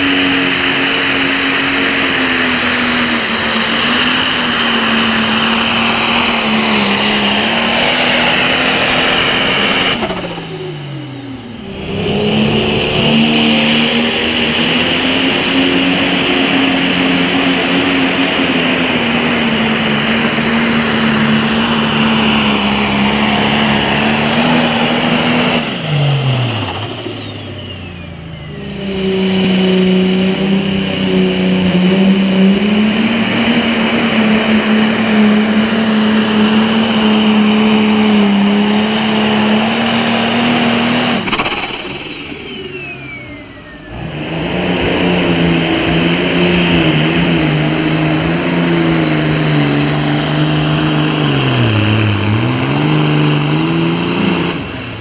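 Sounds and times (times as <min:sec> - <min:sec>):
diesel tractor engine at full throttle: 0:00.0 - 0:55.0
high turbo whine: 0:00.0 - 0:55.0.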